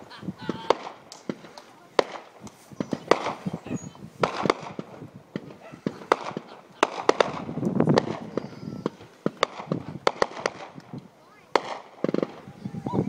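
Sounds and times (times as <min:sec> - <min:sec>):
fireworks bangs and pops: 0:00.0 - 0:13.0.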